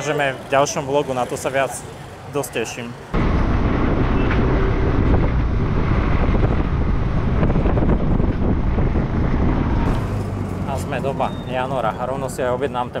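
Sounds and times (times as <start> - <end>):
wind buffeting microphone: 3.2 - 10.4.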